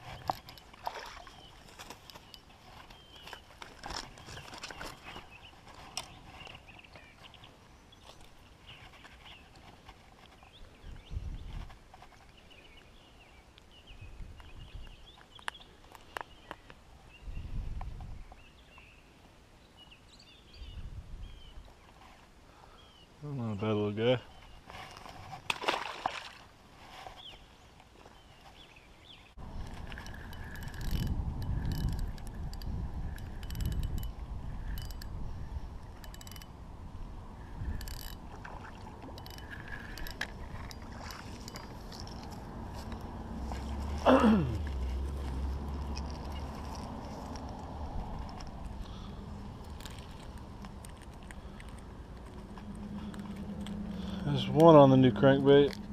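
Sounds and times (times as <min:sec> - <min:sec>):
birds chirping faintly: 0:00.0 - 0:25.2
low rumbling: 0:29.4 - 0:55.9
fishing reel clicking: 0:29.8 - 0:35.2, 0:36.0 - 0:36.5, 0:37.7 - 0:38.2, 0:39.1 - 0:40.3.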